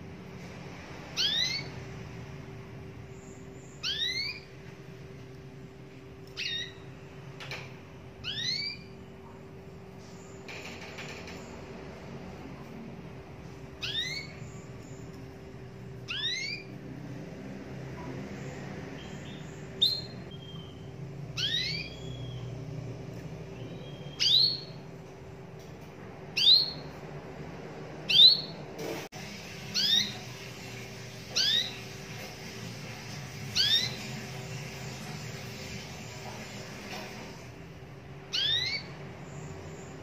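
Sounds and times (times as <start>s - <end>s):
canary chirping: 1.0s - 2.2s, 3.0s - 5.2s, 6.1s - 7.6s, 8.2s - 11.6s, 13.4s - 25.0s, 26.3s - 27.0s, 28.0s - 28.6s, 29.3s - 37.5s, 38.2s - 40.0s.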